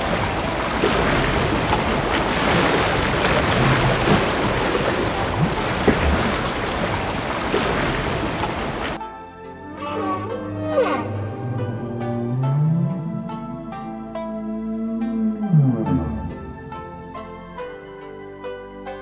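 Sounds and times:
water splashes: 0.0 - 9.0
ocean water washing: 0.0 - 17.0
wind: 0.0 - 19.0.

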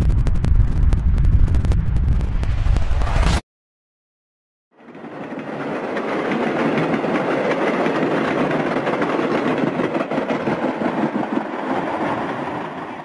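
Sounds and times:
train cars rolling on rails: 4.8 - 13.0.

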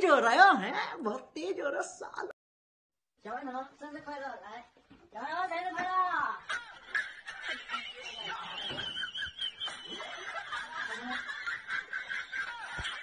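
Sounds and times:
people laughing: 6.4 - 13.0.

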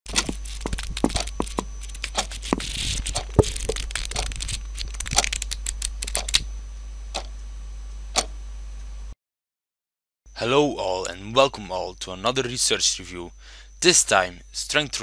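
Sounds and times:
papery rustle: 0.1 - 6.2
steady low hum: 0.1 - 9.2, 10.3 - 15.0.

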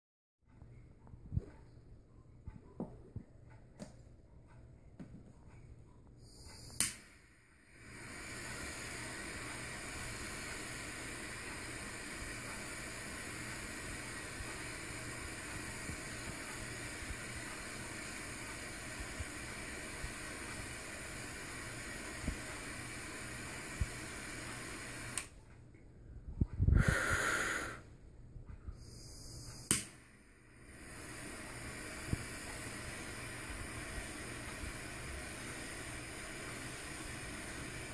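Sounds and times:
jet torch lighter hissing: 6.3 - 25.3, 26.7 - 27.8, 28.8 - 37.9
lighter click: 6.5 - 7.2, 29.5 - 30.0.

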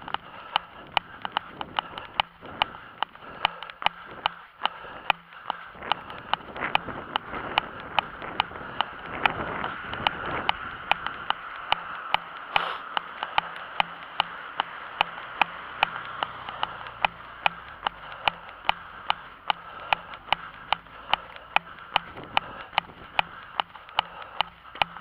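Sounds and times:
continuous hiss: 10.3 - 25.0.

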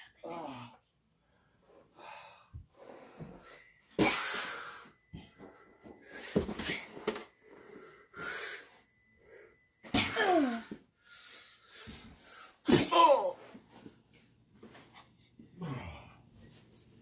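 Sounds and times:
wheezy breathing and exhalations: 1.2 - 9.8.

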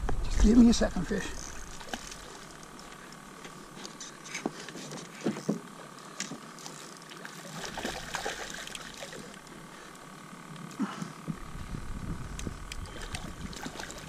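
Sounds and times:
water splashing: 1.5 - 2.9, 6.2 - 9.5, 12.9 - 14.0
fish thrashing at surface: 7.4 - 9.4.

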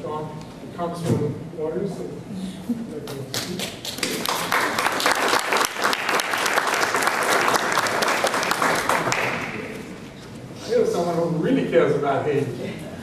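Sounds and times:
audience applauding: 3.3 - 9.8.

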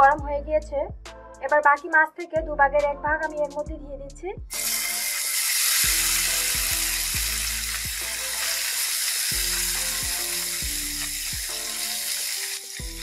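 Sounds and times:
fish sizzling in hot oil: 4.5 - 13.0.

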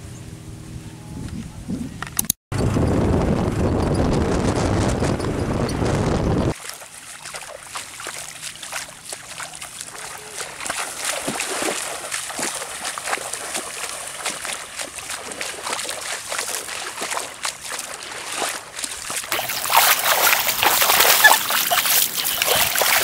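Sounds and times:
feet splashing through water: 6.5 - 23.0.

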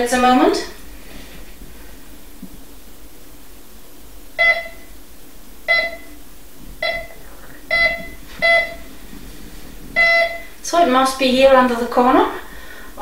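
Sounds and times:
metal detector beeps: 4.4 - 4.9, 5.7 - 6.2, 6.8 - 8.9, 10.0 - 10.5.

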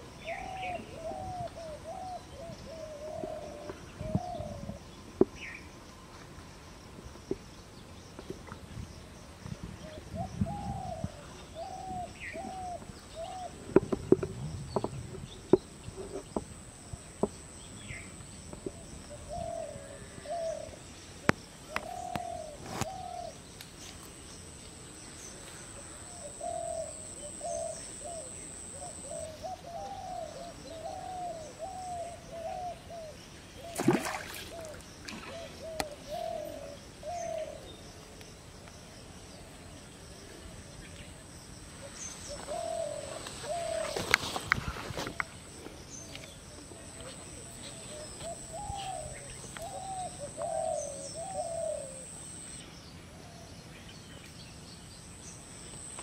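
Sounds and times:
bird cooing: 0.2 - 4.9, 10.1 - 13.7, 18.7 - 20.8, 21.6 - 23.4, 26.0 - 37.8, 41.8 - 45.3, 46.7 - 52.5
water splash: 33.7 - 35.4.

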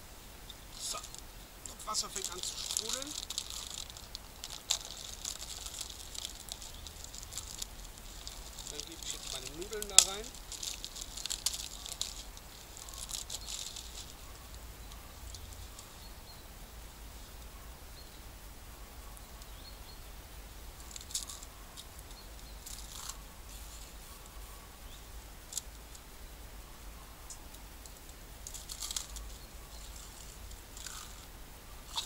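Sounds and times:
plastic packet rustling: 0.8 - 14.2, 28.4 - 31.2.

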